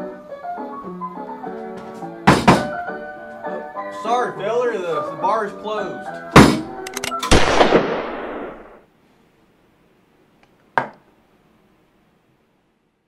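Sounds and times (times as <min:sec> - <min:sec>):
loud sharp bangs: 0:06.4 - 0:08.9.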